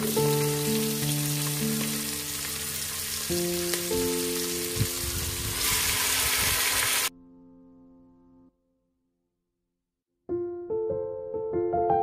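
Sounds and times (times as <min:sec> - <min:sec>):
vegetables sizzling in hot oil: 0:00.0 - 0:07.1
background music sustained notes: 0:00.0 - 0:09.0.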